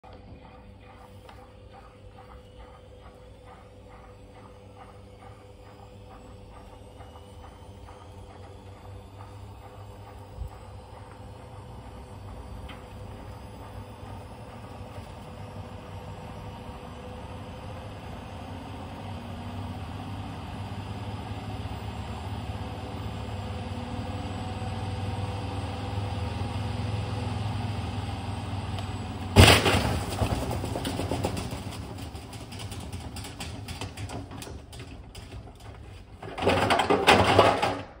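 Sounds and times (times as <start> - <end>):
washing machine motor whine: 0.0 - 29.4
loud bang: 29.4 - 31.2
drum paddles clattering: 29.4 - 38.0.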